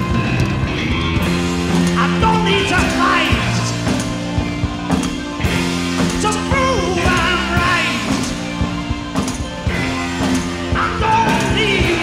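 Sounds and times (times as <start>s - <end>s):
rock music with guitar: 0.0s - 12.0s.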